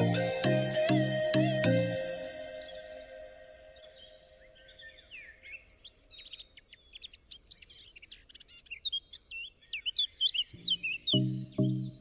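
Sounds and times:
music track: 0.0 - 4.3, 10.6 - 12.0
birds chirping and whistling: 0.0 - 12.0.

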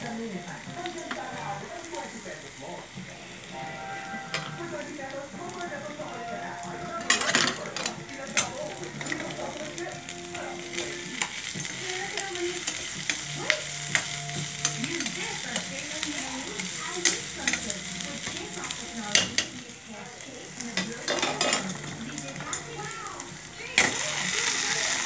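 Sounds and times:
food sizzling in oil: 0.0 - 25.0.

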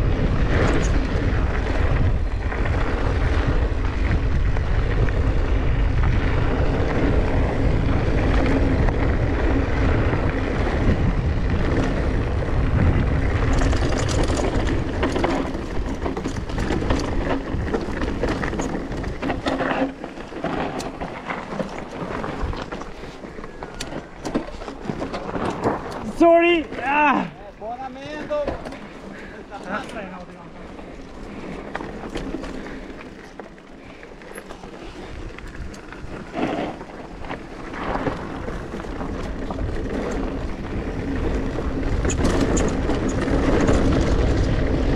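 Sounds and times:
wind rushing over microphone: 0.0 - 24.1, 34.8 - 44.9
bike clicks and rattles: 0.0 - 44.9
bike tyre noise: 0.0 - 44.9.

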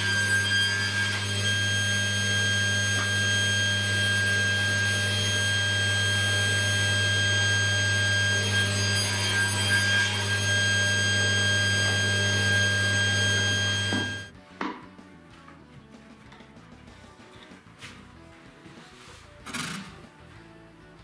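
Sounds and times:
table saw running: 0.0 - 14.3.

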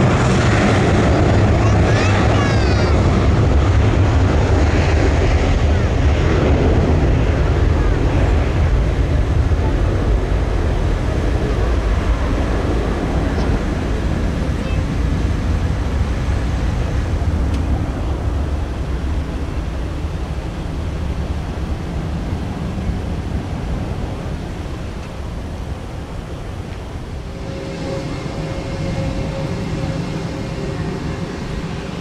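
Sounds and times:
jet engines rumbling: 0.0 - 32.0
thin whine: 26.9 - 32.0.

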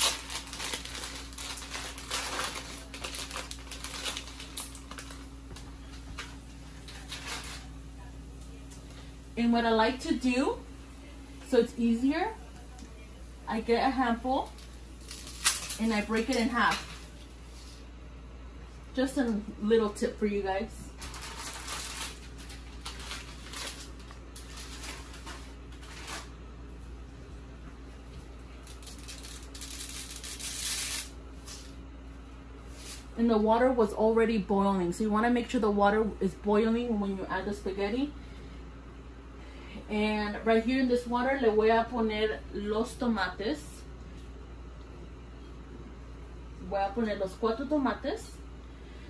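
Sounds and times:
plastic packet rustling: 0.0 - 7.7, 14.5 - 17.0, 21.0 - 26.4, 28.6 - 31.6
plastic wrapper crinkling: 0.0 - 7.7, 14.4 - 17.1, 21.0 - 26.4, 28.5 - 31.8
steady low hum: 0.0 - 49.0.

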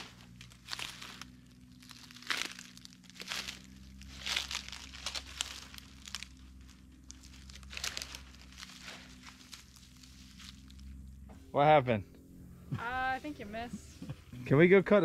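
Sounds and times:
footsteps crunching through dry leaves: 0.0 - 11.3.

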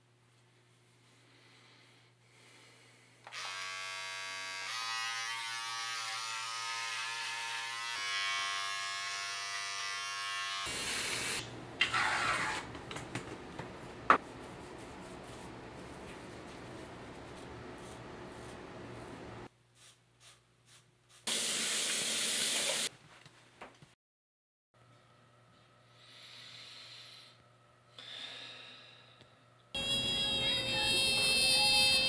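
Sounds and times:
electric beard trimmer buzzing: 3.3 - 11.4, 29.8 - 32.0.

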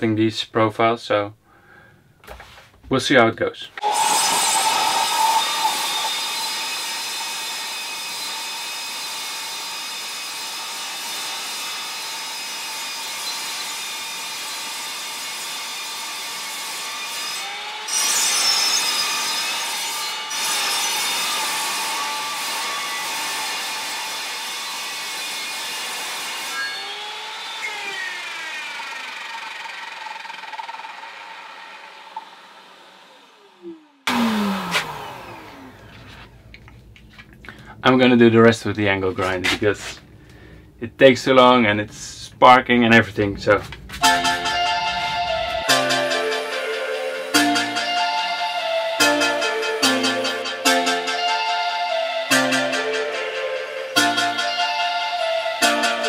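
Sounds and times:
saw cutting metal screech: 3.8 - 35.7, 44.0 - 56.0
saw blade winding down: 3.8 - 36.4, 44.0 - 56.0.

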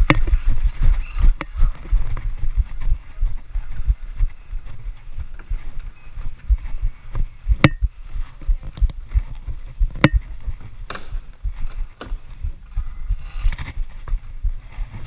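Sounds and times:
camera jostling thumps: 0.0 - 2.7, 6.6 - 12.6.

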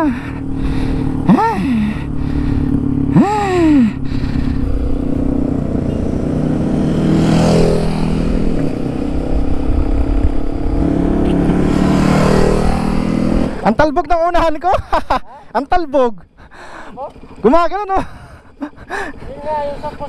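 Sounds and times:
motorcycle engine revving: 0.0 - 20.0
wind rushing over microphone: 4.0 - 13.7.

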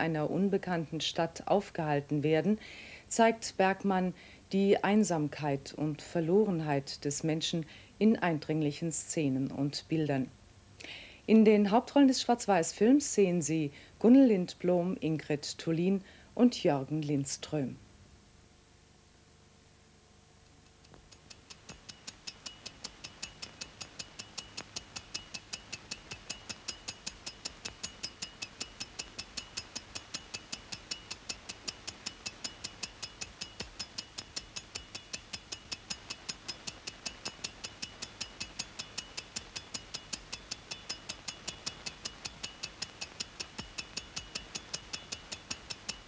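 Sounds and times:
clock ticking rapidly: 20.9 - 46.0.

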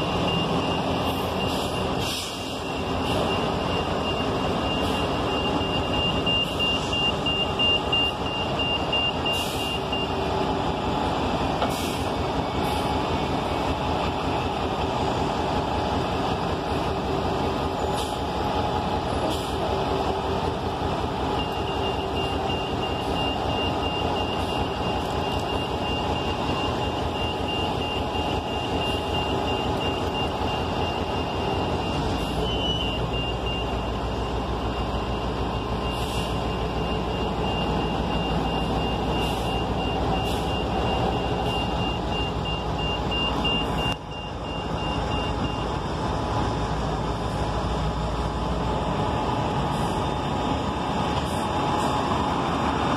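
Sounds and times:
bus engines idling: 0.0 - 52.9
short beeps: 2.6 - 10.2, 35.1 - 45.7.

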